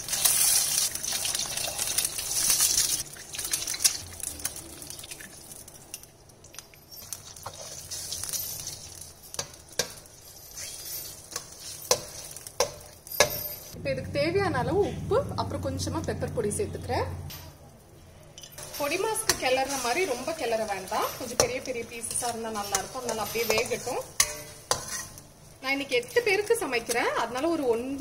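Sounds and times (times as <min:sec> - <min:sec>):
eggs sizzling in hot oil: 0:00.0 - 0:13.1, 0:18.6 - 0:28.0
metal spatula tapping wok: 0:20.6 - 0:25.1.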